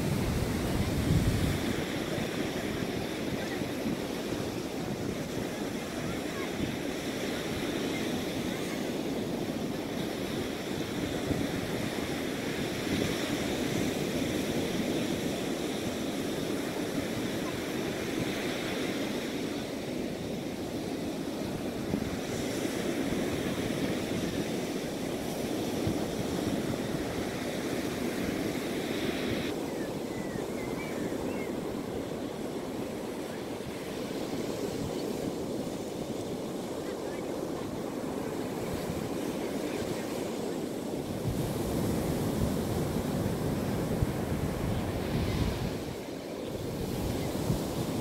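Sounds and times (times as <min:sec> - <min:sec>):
surf breaking on beach: 0:00.0 - 0:48.0
wind buffeting microphone: 0:00.0 - 0:48.0.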